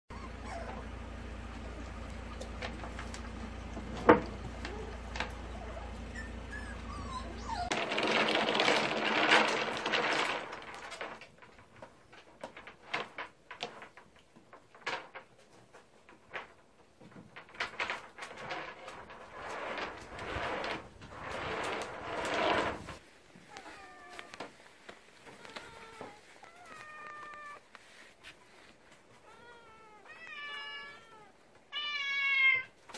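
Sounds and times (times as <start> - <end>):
puppy whimpering: 0.1 - 1.0, 4.6 - 7.8.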